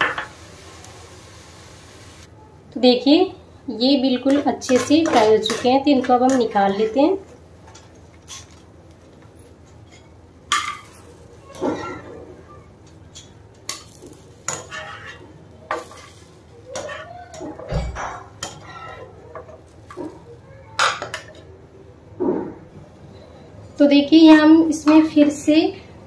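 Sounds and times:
hot oil sizzling: 0.0s - 2.3s
wire skimmer scraping metal pan: 14.5s - 16.2s.

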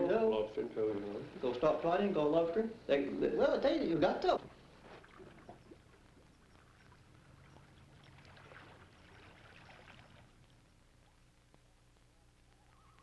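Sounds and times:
faint hum and hiss: 0.0s - 13.0s
light crackles: 4.3s - 13.0s.

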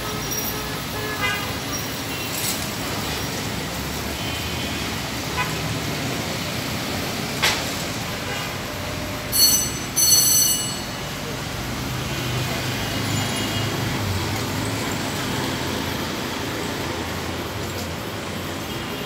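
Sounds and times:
road traffic: 0.0s - 19.0s.

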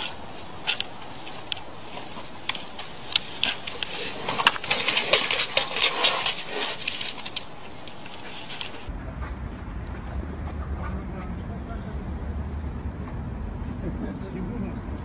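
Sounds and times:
twigs crackling under running animals: 0.0s - 8.9s
steady low rumble: 0.0s - 15.0s.

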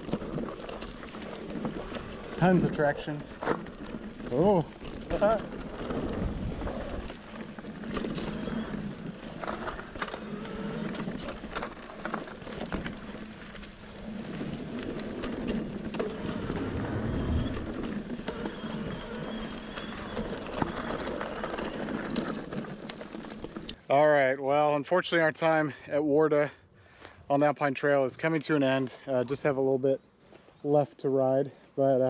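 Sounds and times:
bike clicks and rattles: 0.0s - 23.9s
bike tyres on dirt trail: 0.0s - 26.2s.

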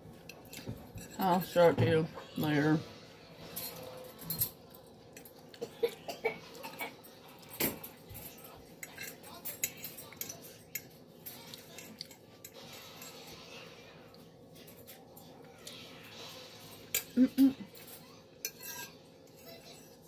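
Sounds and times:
fork clinking on ceramic plate: 7.4s - 13.2s, 18.4s - 20.0s.

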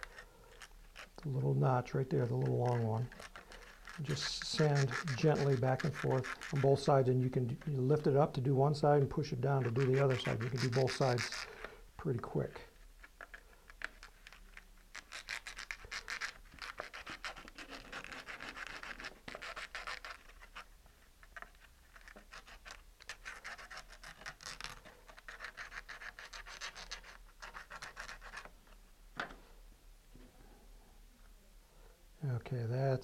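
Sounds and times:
sandpaper scratching on wood: 1.0s - 8.2s, 9.2s - 11.5s, 14.9s - 20.7s, 21.9s - 28.5s.

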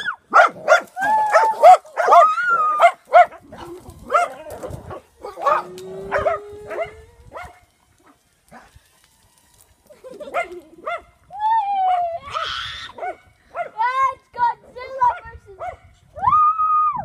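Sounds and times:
dogs barking: 0.3s - 8.7s, 10.3s - 11.1s, 13.0s - 13.8s.

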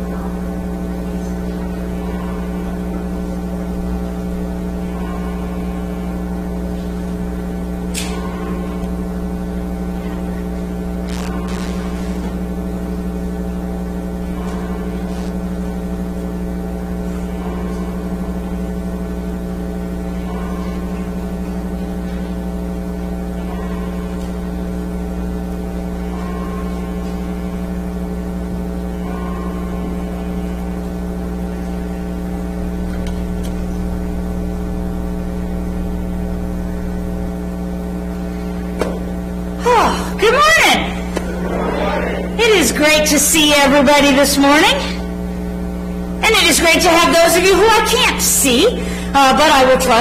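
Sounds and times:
electrical mains hum: 0.0s - 50.0s.

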